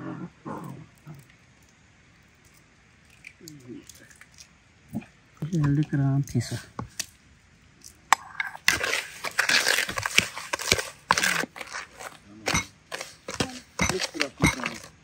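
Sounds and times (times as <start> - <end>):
spoon scraping plastic bowl: 8.2 - 15.0.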